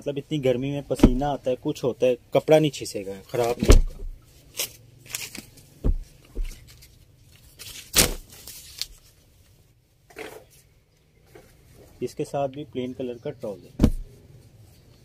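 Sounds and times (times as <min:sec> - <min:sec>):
cotton fabric rustling: 0:13.7 - 0:14.8.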